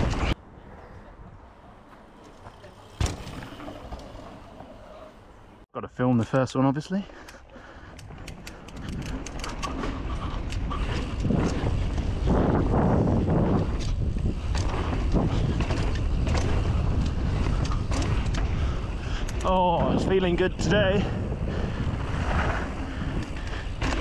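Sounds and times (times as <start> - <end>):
bike clicks and rattles: 7.1 - 24.0
wind buffeting microphone: 7.8 - 24.0.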